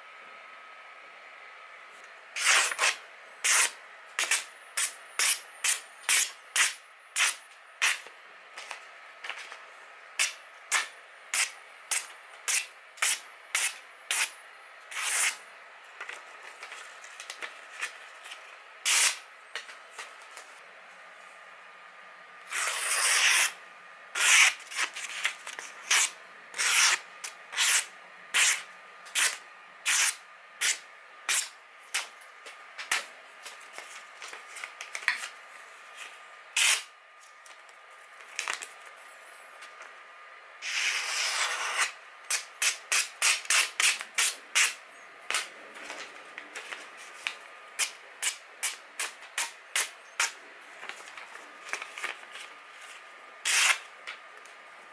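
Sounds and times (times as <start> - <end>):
knife slicing paper: 2.4 - 8.0, 10.2 - 15.4, 18.8 - 19.2, 22.5 - 23.6, 24.2 - 32.1, 36.6 - 36.9, 40.6 - 45.5, 53.4 - 53.8.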